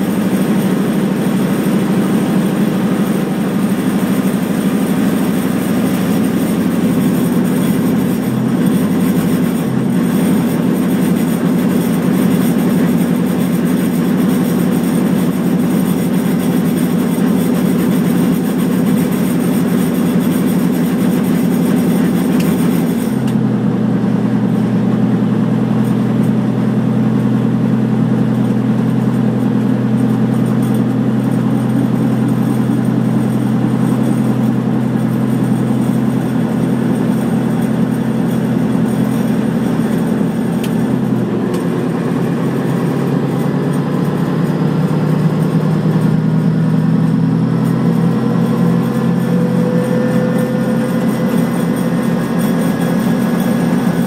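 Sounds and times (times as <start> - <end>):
helicopter piston engine running: 0.0 - 54.0.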